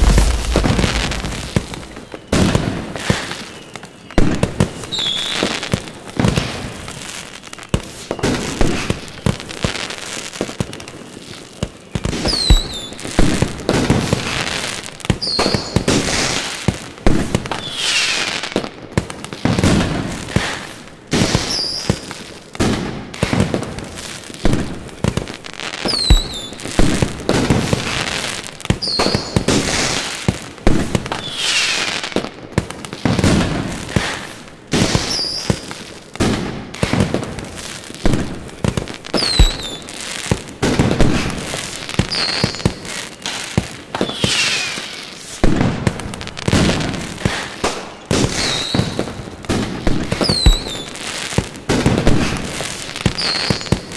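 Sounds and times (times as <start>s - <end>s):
firework whistles falling in pitch: 0.0s - 5.6s, 12.0s - 13.1s, 15.2s - 15.9s, 21.4s - 22.0s, 25.8s - 26.6s, 28.8s - 29.5s, 31.2s - 32.0s, 34.8s - 35.7s, 39.2s - 40.0s, 42.0s - 42.9s, 43.9s - 45.4s, 48.2s - 49.0s, 50.2s - 50.9s, 53.1s - 53.9s
fireworks bursts and bangs: 0.0s - 53.9s.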